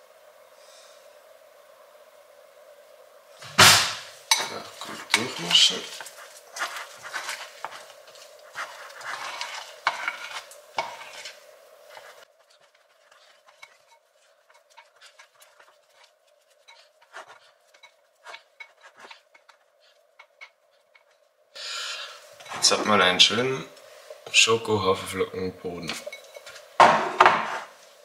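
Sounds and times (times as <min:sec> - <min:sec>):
spoon scraping glass bowl: 0:04.3 - 0:21.2, 0:25.9 - 0:26.7
spoon clinking against glass: 0:25.9 - 0:26.6.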